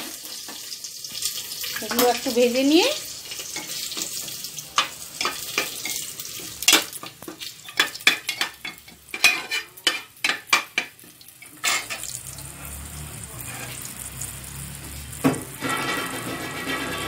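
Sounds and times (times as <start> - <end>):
spices sizzling in hot oil: 0.0 - 17.0
spatula scraping pot bottom: 7.7 - 10.9, 11.5 - 12.8, 13.4 - 13.9, 15.6 - 17.0.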